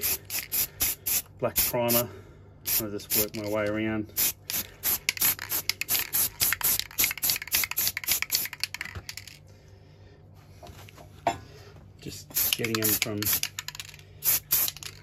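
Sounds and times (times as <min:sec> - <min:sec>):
aerosol spray can hissing: 0:04.2 - 0:08.6, 0:12.4 - 0:13.5, 0:14.2 - 0:15.0.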